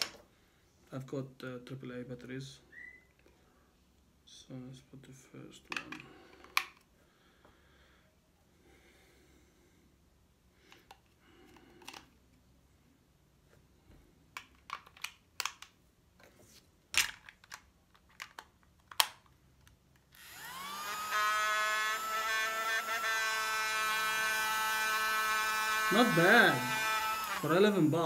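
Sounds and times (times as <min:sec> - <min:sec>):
plastic clicks and snaps: 0:14.3 - 0:15.8, 0:17.0 - 0:20.1
small vacuum motor whine: 0:20.2 - 0:28.0.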